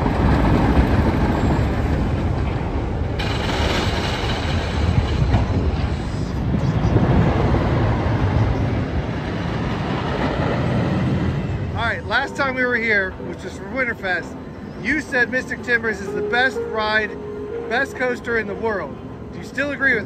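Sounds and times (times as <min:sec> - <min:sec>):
roller coaster rumbling on track: 0:00.0 - 0:20.0.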